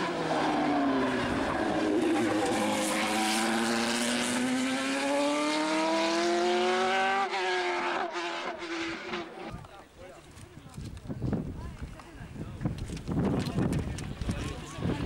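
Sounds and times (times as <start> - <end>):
racing car engine passing: 0.0 - 9.5.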